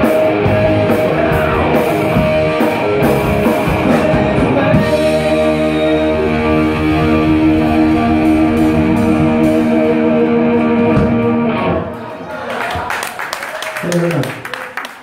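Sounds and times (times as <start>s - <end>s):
drums churning: 0.0s - 12.0s
distorted electric guitar chord: 0.4s - 12.0s.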